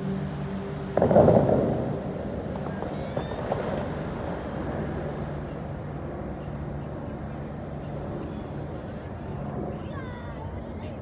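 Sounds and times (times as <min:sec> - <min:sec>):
water jets rushing: 0:00.0 - 0:06.4
steady background hum: 0:00.0 - 0:11.0.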